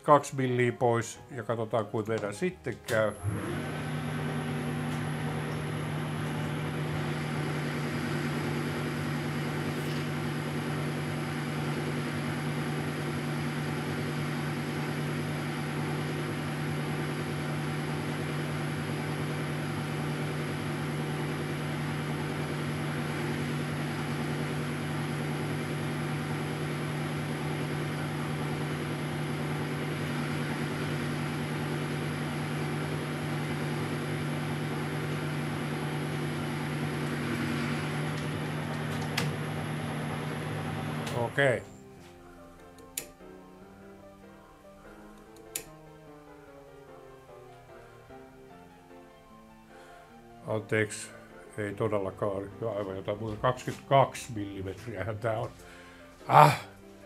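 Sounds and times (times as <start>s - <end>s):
lathe running: 2.9s - 41.4s.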